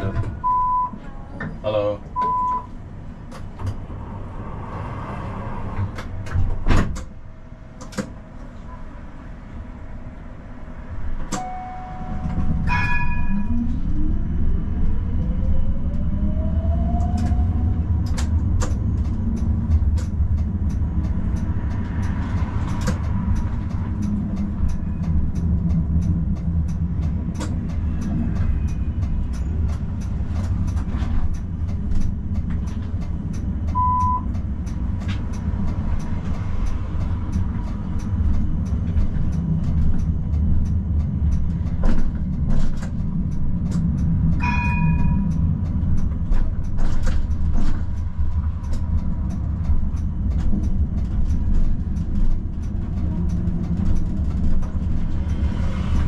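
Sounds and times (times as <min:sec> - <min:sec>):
tram drive whine: 0:00.0 - 0:56.0
wheels rumbling on rails: 0:00.0 - 0:56.0
tram signal tone: 0:00.3 - 0:01.2, 0:02.2 - 0:02.7, 0:11.3 - 0:30.1, 0:33.3 - 0:34.4, 0:43.9 - 0:50.8
short beep: 0:00.4 - 0:01.0, 0:11.4 - 0:13.5, 0:33.7 - 0:34.3.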